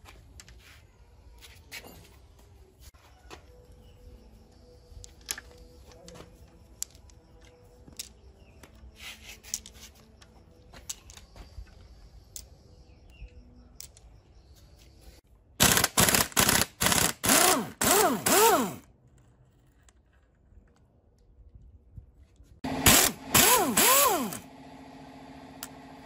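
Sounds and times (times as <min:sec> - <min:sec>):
impact wrench whine: 0:15.6 - 0:18.9, 0:22.6 - 0:26.0
impact wrench hammering: 0:22.6 - 0:24.5.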